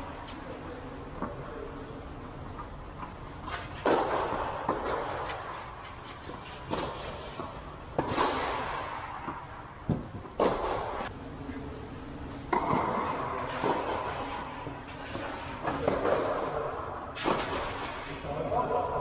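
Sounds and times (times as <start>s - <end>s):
tennis racket hitting ball: 3.4s - 11.1s, 12.5s - 18.0s.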